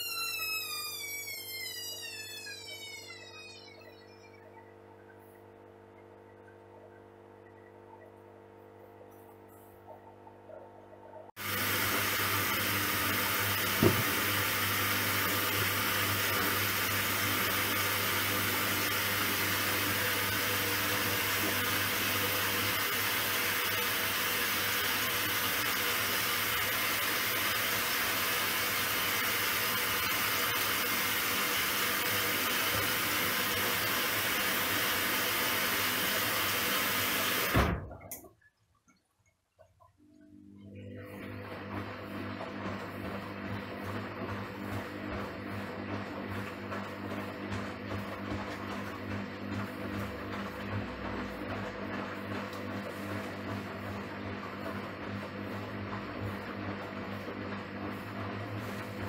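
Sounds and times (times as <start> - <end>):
washing machine filling with water: 0.0 - 8.3, 11.4 - 38.4, 40.3 - 59.0
knock: 13.8 - 14.1.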